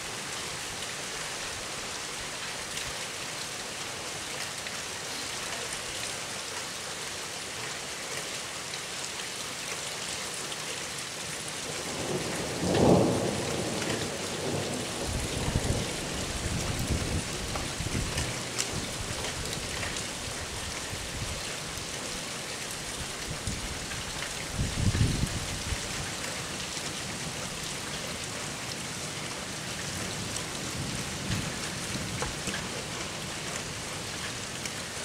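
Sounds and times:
rain hissing: 11.7s - 26.6s.

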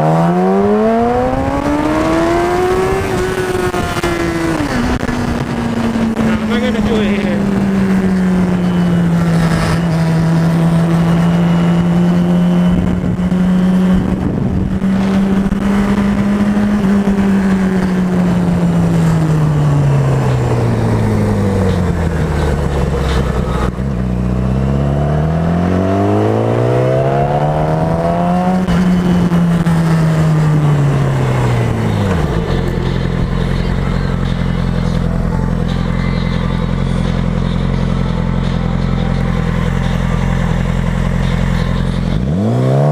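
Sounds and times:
motorcycle engine revving: 0.0s - 42.9s
motorcycle engine idling: 28.8s - 42.2s.

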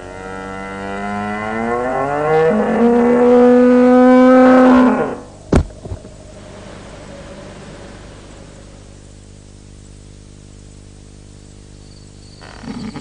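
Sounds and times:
cartoon cow mooing: 1.0s - 5.3s.

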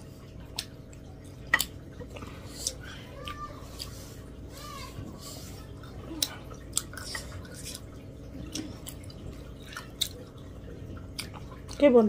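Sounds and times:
steady low hum: 0.0s - 12.0s
wet chewing and lip smacks: 0.4s - 4.0s, 5.8s - 11.8s.

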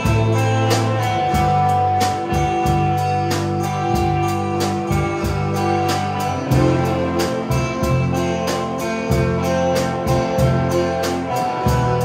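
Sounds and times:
steady drumbeat: 0.0s - 12.0s
sustained guitar notes: 0.0s - 12.0s.

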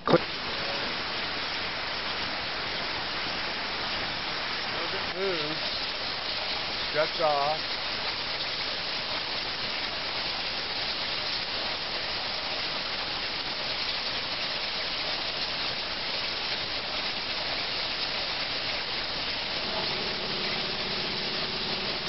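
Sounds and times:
water spraying and splashing: 0.0s - 22.0s
low steady hum: 19.5s - 22.0s.

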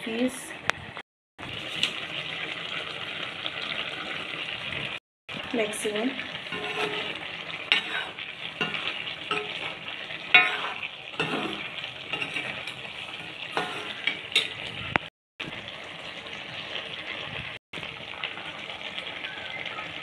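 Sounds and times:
curry sizzling in a pan: 1.4s - 20.0s
spoon scraping and knocking pan: 6.4s - 14.8s.

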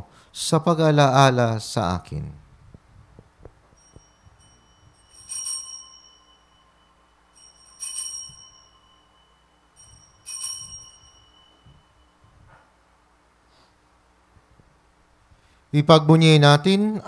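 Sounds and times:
altar bell ringing: 3.7s - 12.9s.

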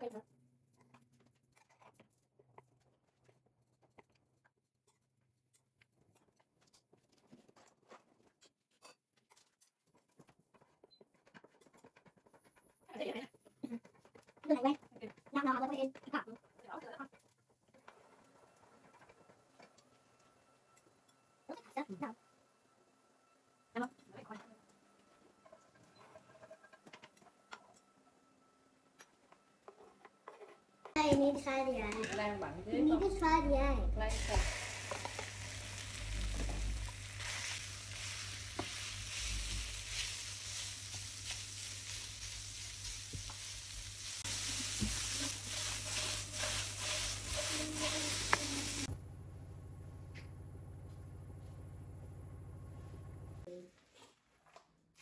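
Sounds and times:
low steady hum: 31.6s - 44.2s, 47.3s - 53.5s.

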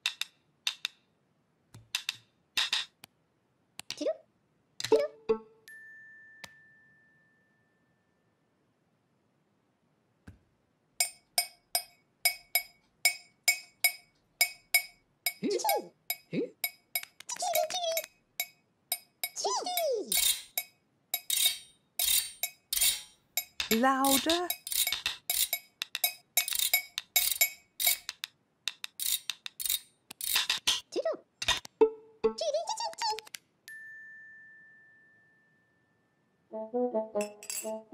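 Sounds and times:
spoons clacking together: 20.1s - 30.8s, 37.2s - 37.8s
teaspoon tapping ceramic mug: 37.2s - 37.8s.

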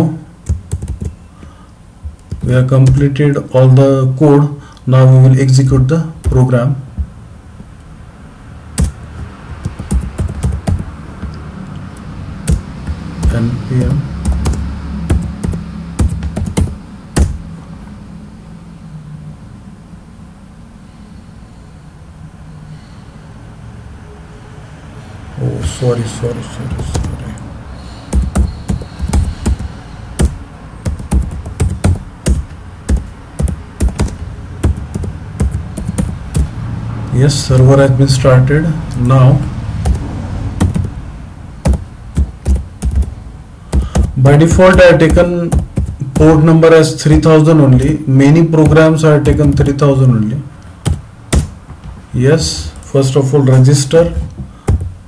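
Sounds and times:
computer keyboard taps: 0.4s - 1.2s, 2.0s - 3.0s, 8.8s - 17.4s, 26.7s - 27.2s, 28.1s - 36.6s, 39.8s - 41.0s, 41.6s - 43.1s, 43.7s - 46.4s, 48.6s - 49.8s, 50.8s - 52.0s, 54.1s - 55.0s.

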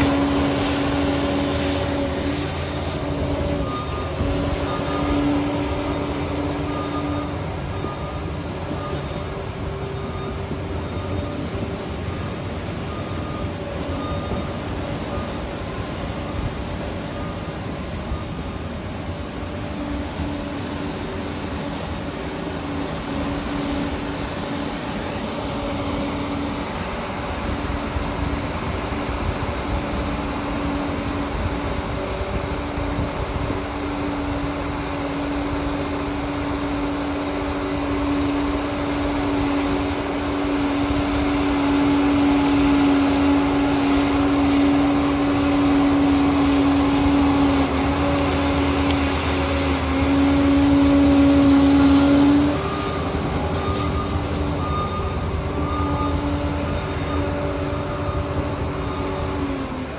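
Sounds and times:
dozer diesel engine under load: 0.0s - 59.9s.

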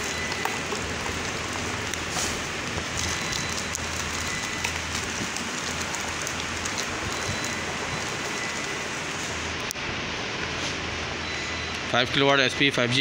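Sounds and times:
plastic bags crinkling: 0.0s - 9.2s.

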